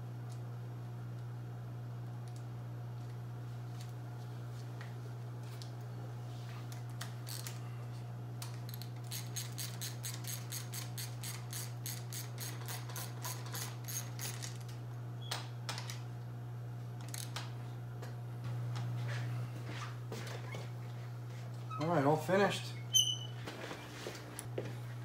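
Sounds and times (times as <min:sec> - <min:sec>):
hand ratchet clicking: 0:08.7 - 0:14.6.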